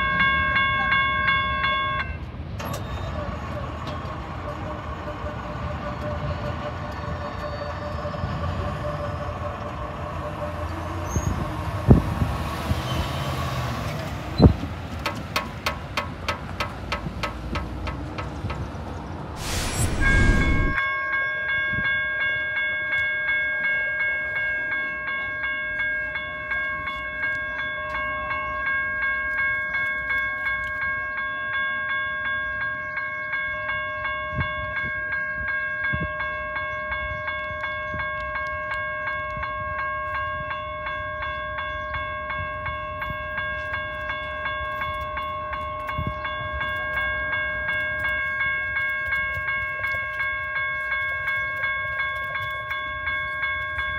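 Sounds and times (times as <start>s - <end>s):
railroad bell ringing: 0.0s - 12.0s, 19.4s - 53.9s
train rumbling: 0.5s - 20.8s
short whoosh: 19.4s - 20.8s.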